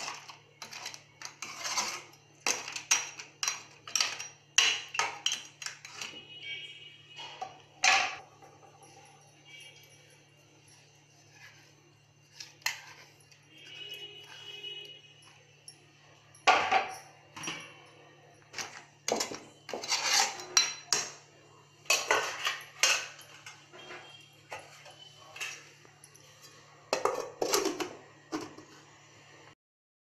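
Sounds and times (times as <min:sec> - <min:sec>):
metal spoon scraping a pot: 0:00.0 - 0:06.5, 0:10.8 - 0:15.1, 0:16.9 - 0:29.1.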